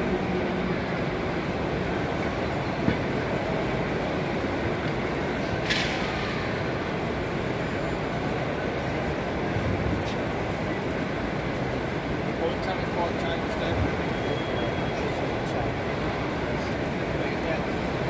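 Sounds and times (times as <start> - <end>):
hubbub of exhibition hall crowd: 0.0 - 18.0
model trains running: 0.0 - 18.0
brief hiss: 5.4 - 6.5.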